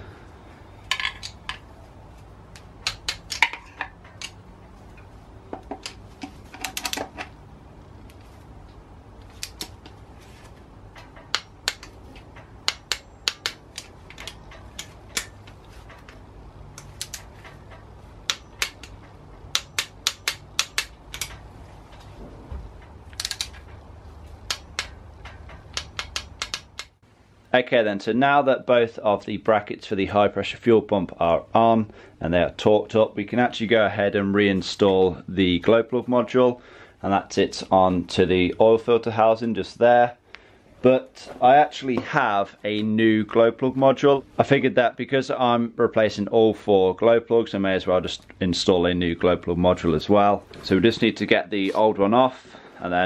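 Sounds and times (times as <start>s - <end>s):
hand tools clicking on metal: 2.5s - 7.4s, 9.2s - 10.0s, 10.9s - 21.5s, 22.8s - 23.8s, 24.4s - 27.0s.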